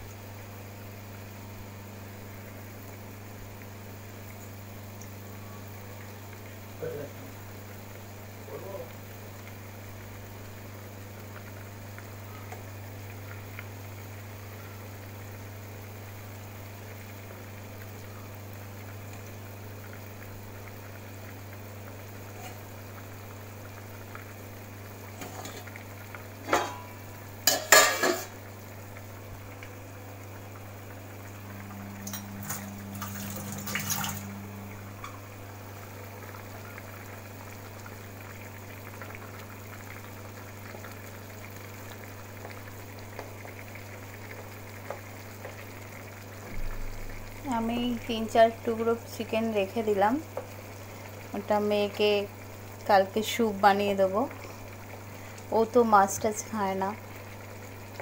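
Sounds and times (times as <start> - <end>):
gravy simmering in a pan: 0.0 - 58.0
steady low hum: 16.9 - 53.2.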